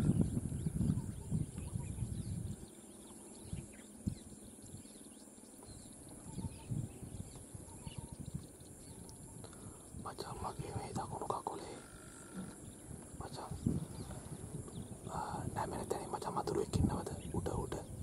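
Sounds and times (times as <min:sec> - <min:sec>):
faint chirps: 0:00.0 - 0:18.0
steady high hiss: 0:02.3 - 0:18.0
low rumbles and knocks: 0:12.3 - 0:15.0.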